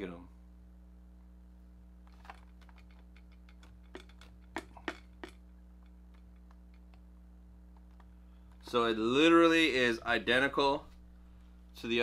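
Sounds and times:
steady low hum: 0.0 - 12.0
plastic knocks: 2.1 - 5.4
plastic clicks and taps: 2.2 - 5.4.

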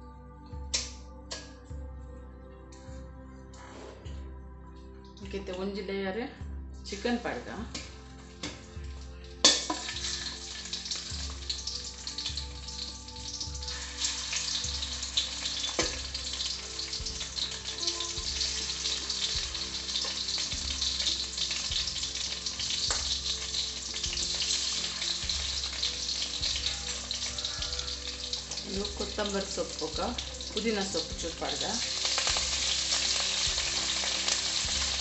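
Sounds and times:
chicken sizzling in hot oil: 9.4 - 35.0.

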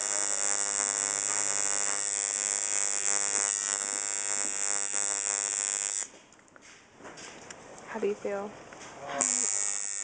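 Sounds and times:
tattoo machine buzzing: 0.0 - 6.1, 9.2 - 10.0.

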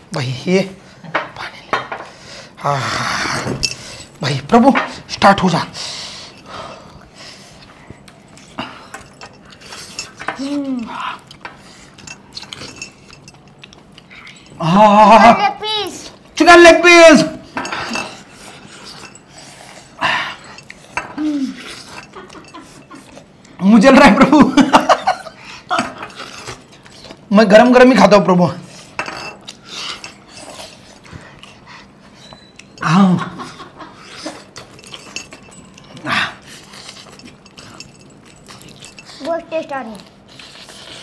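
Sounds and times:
faint clinks and rustling: 3.2 - 14.7, 17.3 - 23.6, 28.6 - 41.0
people chewing: 4.9 - 15.2, 17.4 - 27.3, 28.6 - 41.0
clinks on steel plate: 28.9 - 30.6.

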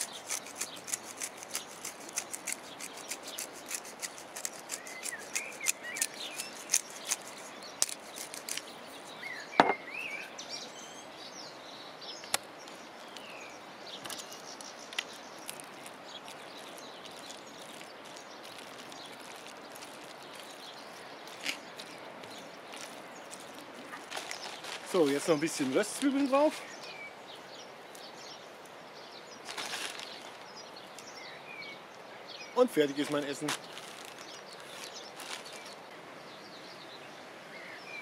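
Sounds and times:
birds chirping: 0.0 - 38.0
sharp knock: 9.6 - 9.8.

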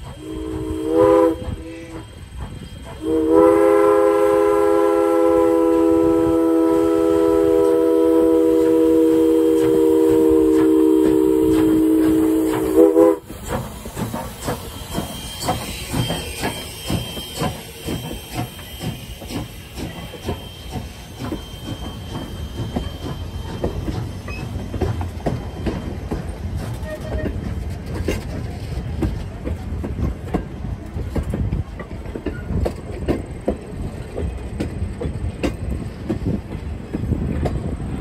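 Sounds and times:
steam locomotive whistle: 0.0 - 13.4, 14.0 - 27.4
steam train chugging past: 0.0 - 38.0.

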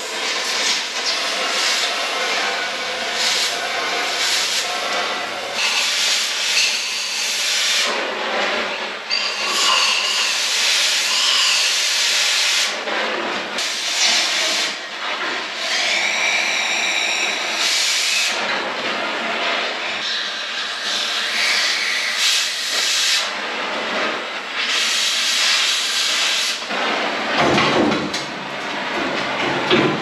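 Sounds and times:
cutting torch hissing: 0.4 - 7.9, 20.9 - 23.3.

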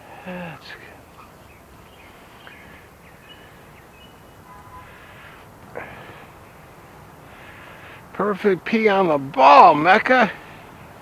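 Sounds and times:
outdoor background noise: 0.0 - 11.0
faint high bird chirps: 0.4 - 5.0.

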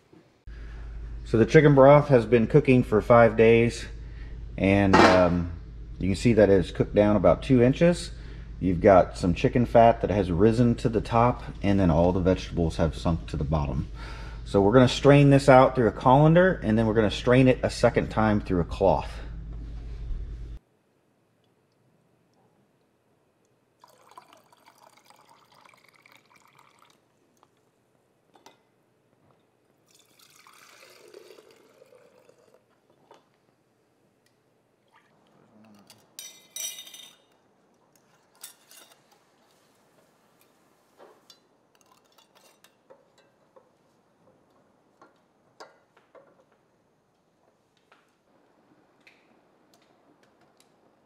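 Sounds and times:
broth pouring through funnel: 23.8 - 27.4, 29.8 - 33.1
sharp glass clink: 36.2 - 37.3.

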